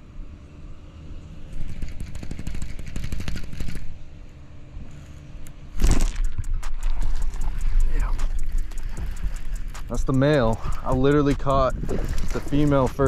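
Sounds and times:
fishing reel gear clicks: 0:05.8 - 0:13.0.

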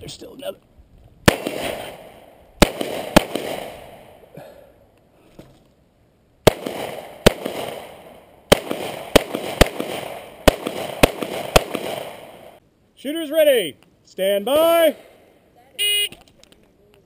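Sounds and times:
pistol shots echoing: 0:01.3 - 0:04.2, 0:06.4 - 0:12.6.

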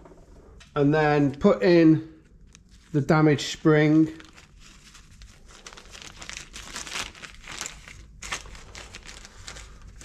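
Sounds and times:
plastic bag crinkling: 0:02.3 - 0:10.0.

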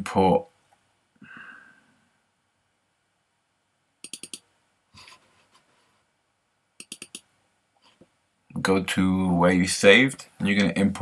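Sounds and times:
computer mouse clicks: 0:04.0 - 0:04.5, 0:06.8 - 0:07.3.

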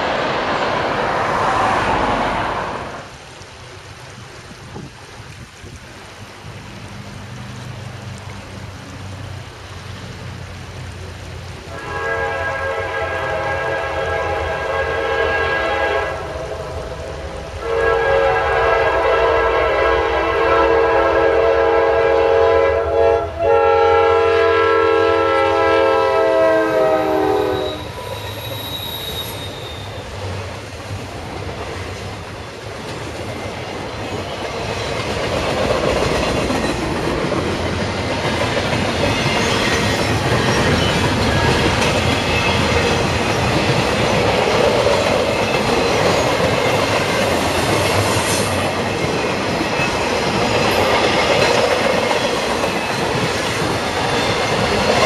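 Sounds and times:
locomotive air horn blasts: 0:11.7 - 0:16.8, 0:17.6 - 0:28.2
train wheels rumbling and clattering: 0:26.7 - 0:55.0.

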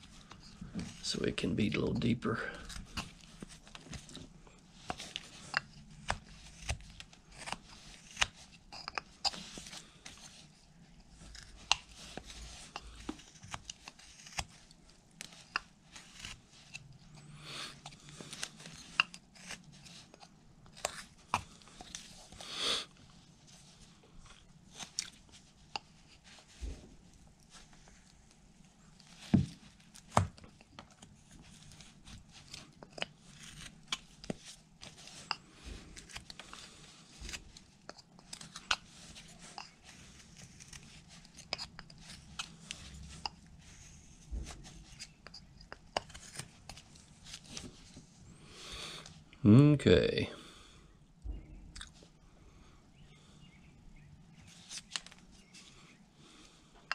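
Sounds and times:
knife carving wood: 0:00.0 - 0:22.5, 0:23.8 - 0:26.8, 0:28.9 - 0:48.0.

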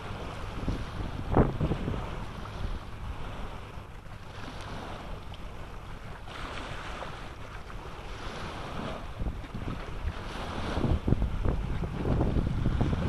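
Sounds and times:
wind blowing across microphone: 0:00.0 - 0:03.6, 0:07.9 - 0:13.0.

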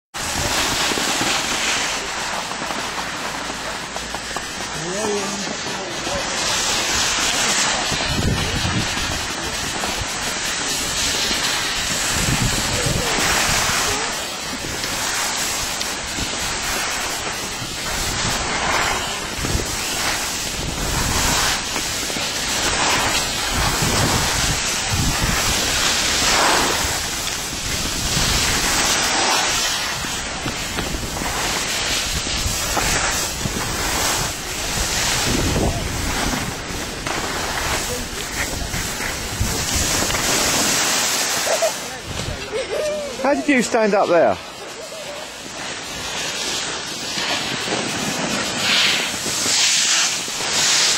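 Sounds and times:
skis scraping over snow: 0:00.1 - 0:50.9
wind buffeting microphone: 0:06.1 - 0:41.4.

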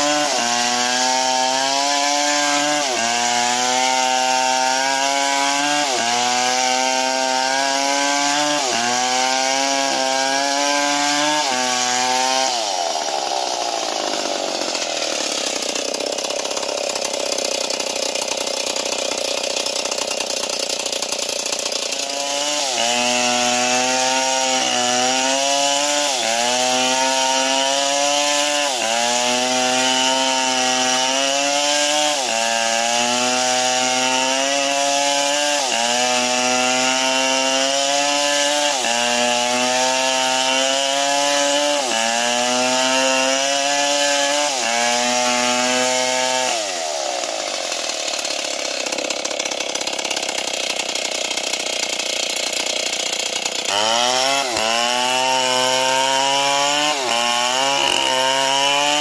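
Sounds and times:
chainsaw cutting log: 0:00.0 - 0:59.0.

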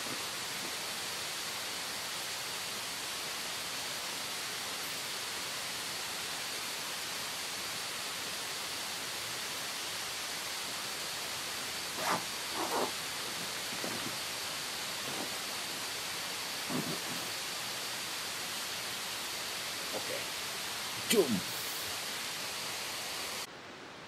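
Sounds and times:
waterfall and river rushing: 0:00.0 - 0:23.6
backpack rustling: 0:11.9 - 0:14.2, 0:15.0 - 0:15.8, 0:16.7 - 0:17.3.

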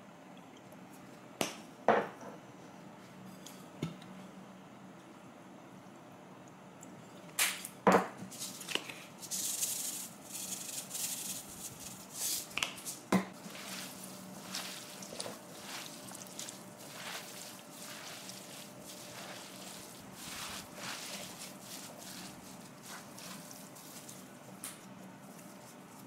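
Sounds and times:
noodles tossed by hand: 0:08.3 - 0:26.0
sesame seeds sprinkled: 0:08.3 - 0:26.0.

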